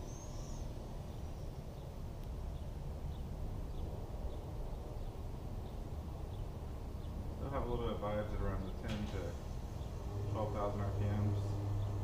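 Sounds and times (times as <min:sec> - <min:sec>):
quadcopter propellers whirring: 0:09.4 - 0:12.0.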